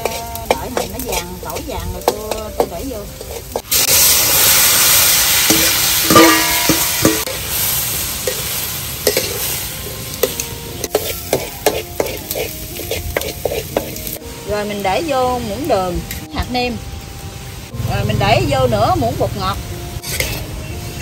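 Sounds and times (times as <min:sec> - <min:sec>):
spatula scraping wok: 0:00.0 - 0:14.2, 0:20.0 - 0:21.0
food sizzling in hot oil: 0:00.0 - 0:21.0.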